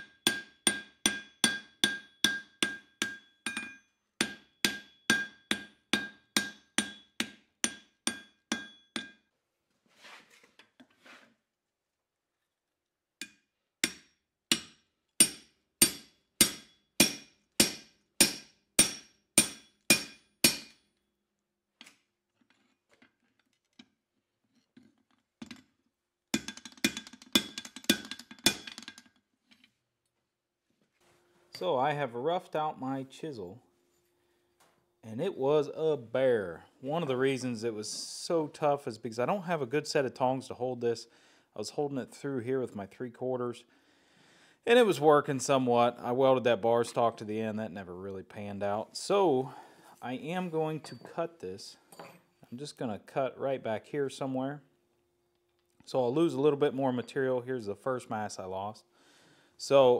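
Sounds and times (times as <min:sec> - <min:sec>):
hammer ringing on anvil: 0:00.3 - 0:09.2.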